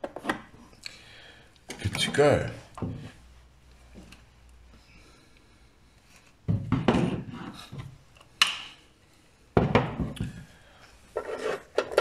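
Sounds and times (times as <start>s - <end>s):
tools rubbing and scraping: 11.1s - 12.0s.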